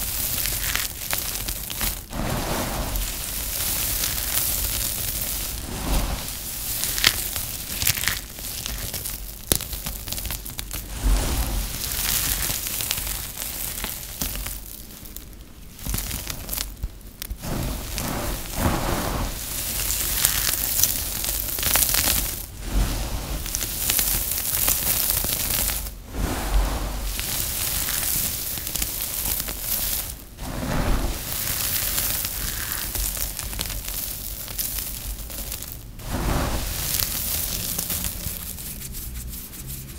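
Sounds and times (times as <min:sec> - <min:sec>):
soap chips crunching in hands: 0:00.0 - 0:02.1, 0:03.0 - 0:05.7, 0:06.3 - 0:10.9, 0:11.7 - 0:17.4, 0:19.7 - 0:22.4, 0:27.2 - 0:30.2, 0:31.3 - 0:35.9, 0:36.7 - 0:39.4.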